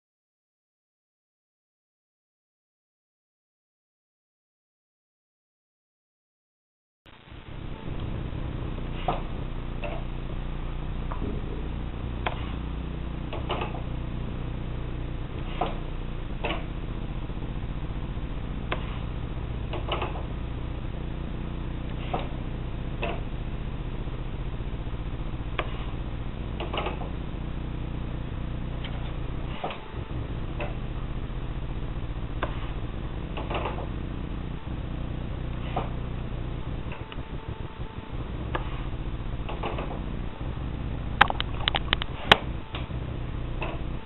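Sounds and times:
steady low hum: 7.1 - 44.0
pneumatic hiss: 8.8 - 10.0, 12.3 - 12.7, 15.4 - 16.7, 18.7 - 20.3, 21.9 - 22.4, 25.6 - 26.0, 28.8 - 29.9, 32.4 - 32.8, 35.6 - 36.0, 38.5 - 40.0
landing gear clicking: 13.3 - 14.0, 18.7 - 20.3, 41.2 - 42.9.

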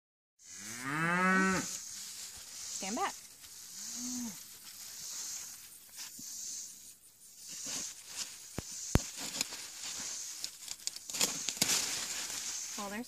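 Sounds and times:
high pulsing insect buzz: 0.4 - 13.0
sunflower stalk cracking: 10.4 - 12.2.

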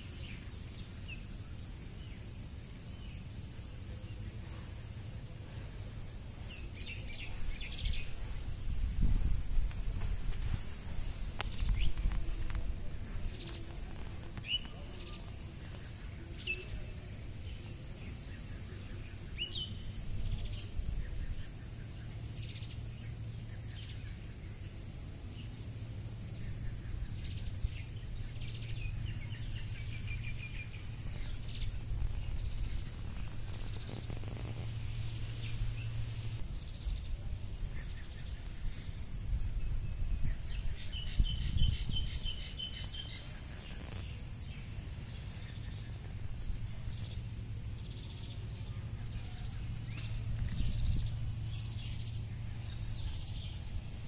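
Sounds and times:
insect drone: 0.0 - 54.0
low rumble: 3.5 - 16.1, 25.5 - 54.0.

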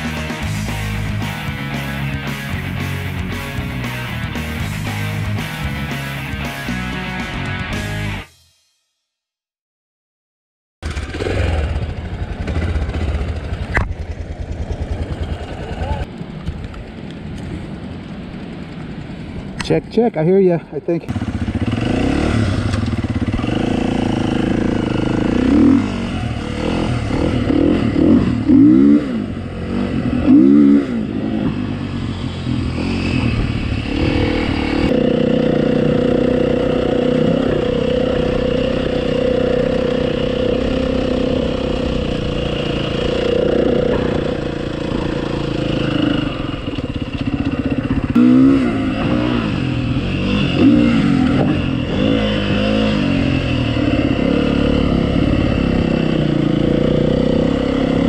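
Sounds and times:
off-road vehicle engine revving: 21.1 - 58.0.

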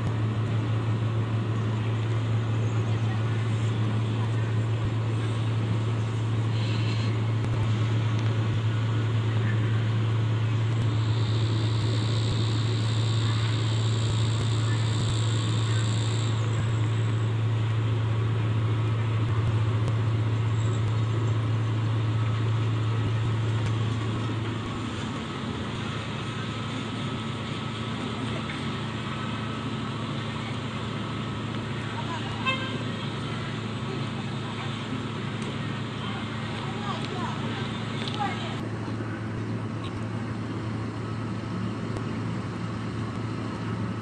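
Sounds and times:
high thin whine: 0.0 - 43.3
diesel engine running under load: 0.0 - 44.0.

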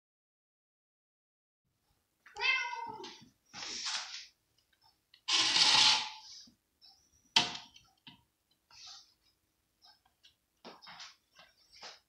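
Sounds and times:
cat meowing: 2.3 - 3.2
plate scraping on floor: 5.3 - 6.4.

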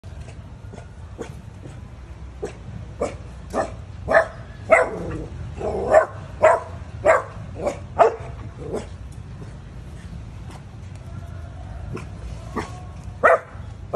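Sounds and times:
dog barking: 2.4 - 5.1, 5.7 - 8.9, 12.6 - 13.6.

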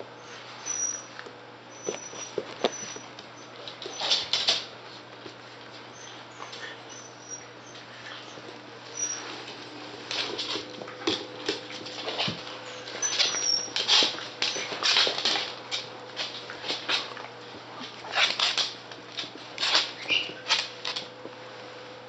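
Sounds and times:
puppies scuffling: 0.2 - 21.8
high squeaks: 12.6 - 14.8
claws clicking on wooden floor: 17.8 - 21.1.

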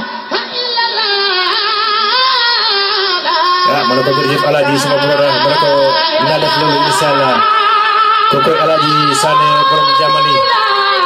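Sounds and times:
person singing ornamented melody: 3.5 - 11.0
deeper voice holding long notes: 3.6 - 7.6, 8.3 - 11.0.

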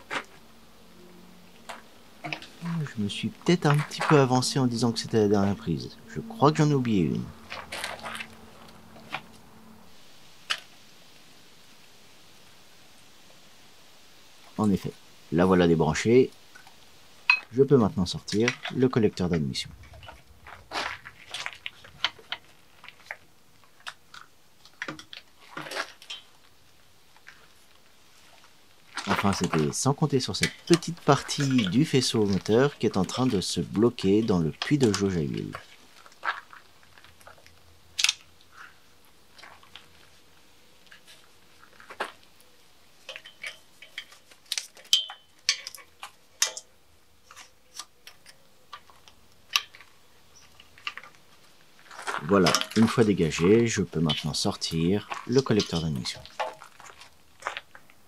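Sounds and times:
clicks and rattles of engine parts: 43.0 - 53.5.

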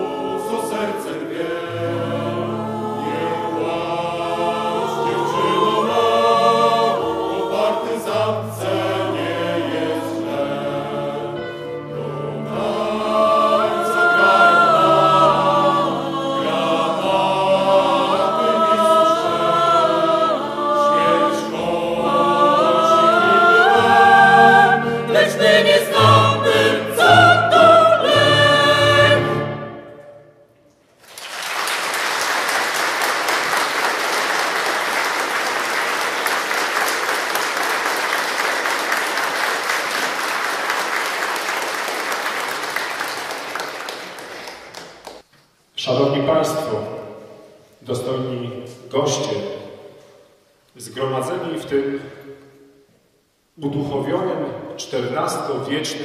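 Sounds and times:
mixed choir singing: 0.0 - 30.2
audience applauding: 31.0 - 45.2.

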